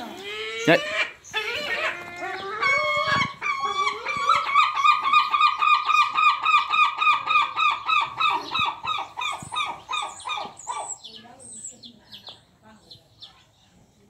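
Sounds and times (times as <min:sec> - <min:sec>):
gull calling: 0:00.0 - 0:11.1.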